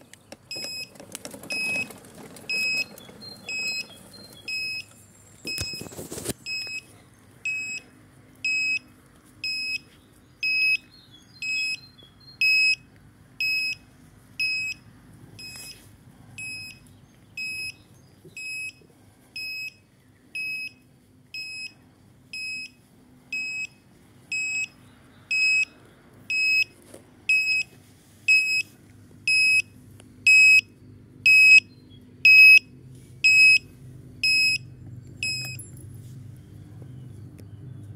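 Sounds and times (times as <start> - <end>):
short high warning beeps: 7.5 - 7.8, 27.3 - 27.7, 28.3 - 28.7, 29.3 - 29.7, 31.3 - 31.7, 32.3 - 32.6, 33.2 - 34.6, 35.2 - 35.6.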